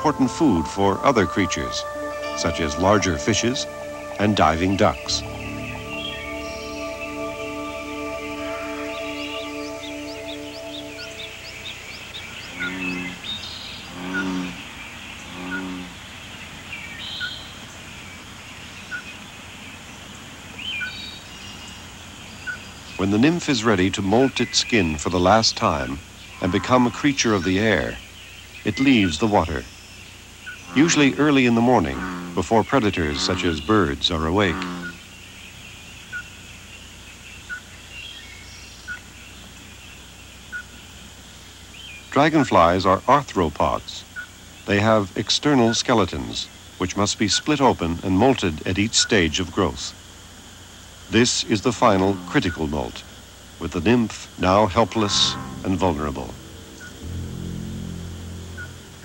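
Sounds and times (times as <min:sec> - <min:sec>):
faint high chirps: 0:00.0 - 0:14.6, 0:53.6 - 0:59.0
birds chirping: 0:00.0 - 0:50.0, 0:51.0 - 0:59.0
low drawn-out bird calls: 0:00.0 - 0:50.1, 0:51.0 - 0:59.0
steady background hiss: 0:00.0 - 0:59.0
short repeating bird note: 0:01.6 - 0:13.2, 0:54.5 - 0:59.0
short high call: 0:54.7 - 0:59.0.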